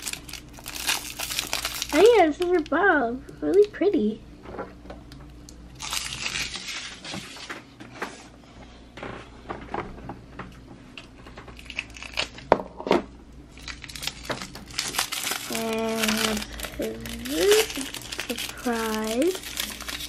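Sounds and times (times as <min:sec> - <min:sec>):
foil wrapper crinkling: 0:00.0 - 0:02.8, 0:05.8 - 0:07.5, 0:11.3 - 0:12.5, 0:13.5 - 0:20.0.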